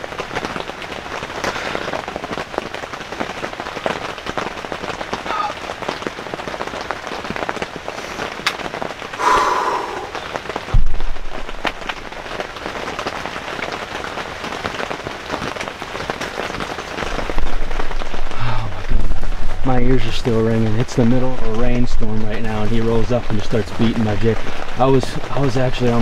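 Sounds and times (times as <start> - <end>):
heavy rain pattering: 0.0 - 26.0
low rumble: 9.2 - 12.0.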